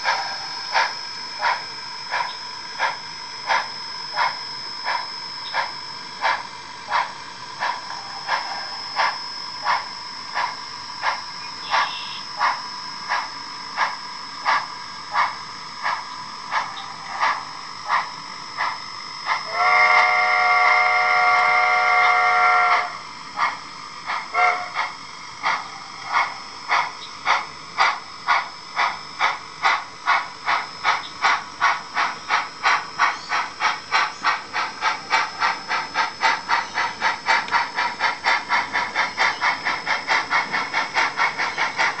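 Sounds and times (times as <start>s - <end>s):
steam exhaust chuffs: 0.0s - 42.0s
steam whistle: 7.7s - 13.2s, 18.8s - 23.1s, 24.3s - 24.8s.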